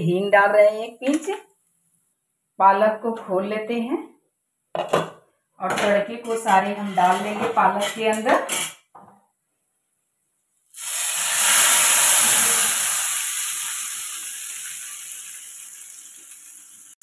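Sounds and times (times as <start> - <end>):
hot oil sizzling in curry: 10.7 - 17.0.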